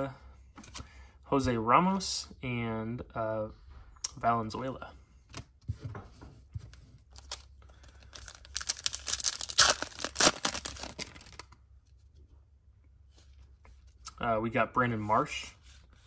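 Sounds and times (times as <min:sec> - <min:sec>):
wrapper tearing and crinkling: 0:07.2 - 0:11.6.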